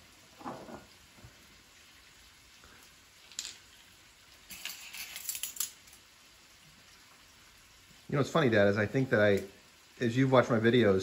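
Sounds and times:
light clicks and metallic clinks: 0:04.5 - 0:06.0.

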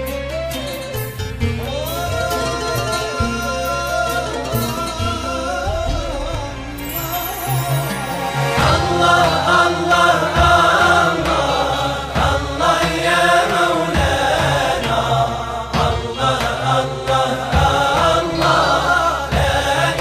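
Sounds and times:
voices chanting a melodic refrain: 0:01.6 - 0:20.0
deep drum beat: 0:04.6 - 0:07.1, 0:08.6 - 0:20.0.

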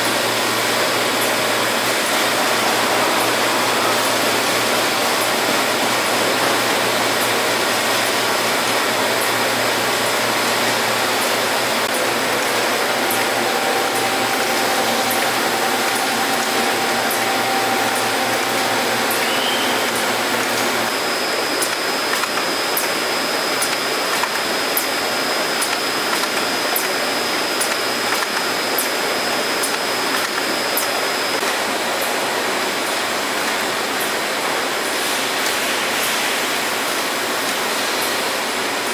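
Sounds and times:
machine whirring hiss: 0:00.0 - 0:38.9
faint high steady tone: 0:12.6 - 0:21.0.

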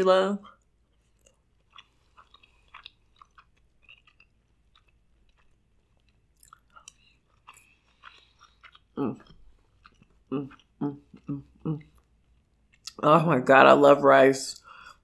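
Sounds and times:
chewing and mouth clicks: 0:00.6 - 0:13.0.

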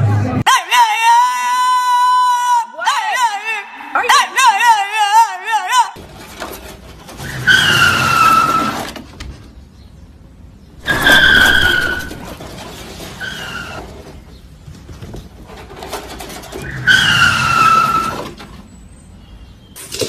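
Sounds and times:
high squealing cries: 0:07.2 - 0:09.0, 0:10.8 - 0:12.4, 0:13.2 - 0:13.9, 0:16.6 - 0:18.4.

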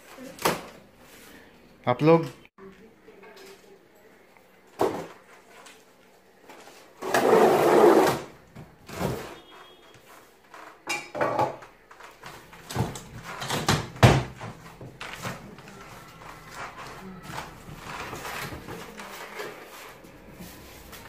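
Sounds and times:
cardboard scraping on polystyrene: 0:06.7 - 0:08.3
cardboard knocking and bumping: 0:12.2 - 0:15.7.

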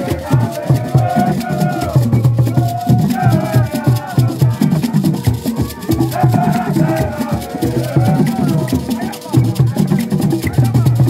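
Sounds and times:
group singing: 0:00.0 - 0:11.0
hand drums beating: 0:00.0 - 0:11.0
hand-clapping: 0:00.0 - 0:11.0
sharp percussion strikes: 0:00.0 - 0:11.0.

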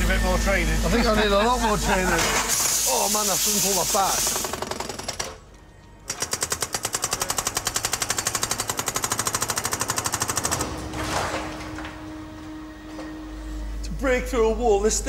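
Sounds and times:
hydraulic breaker pounding concrete: 0:00.0 - 0:13.3
broken concrete falling: 0:10.6 - 0:12.5.

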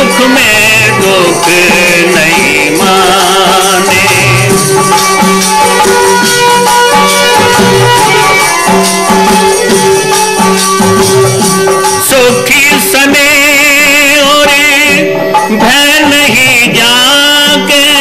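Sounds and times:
melody line: 0:00.0 - 0:12.1
rattling jingling percussion: 0:00.0 - 0:18.0.

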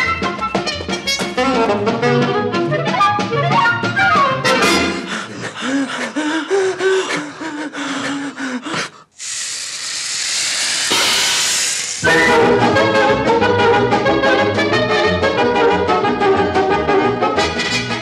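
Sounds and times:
burning fuse hissing: 0:09.2 - 0:12.1.

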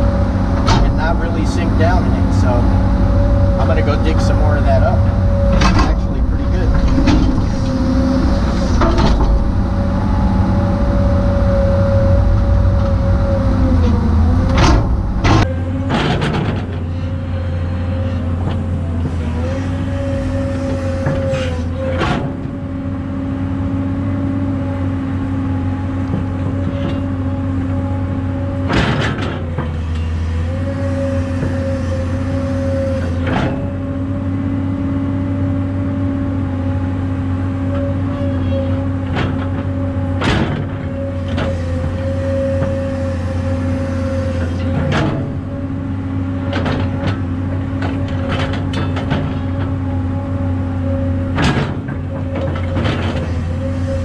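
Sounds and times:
bucket and boom clanking: 0:00.0 - 0:16.8
excavator diesel engine running: 0:00.0 - 0:54.0.

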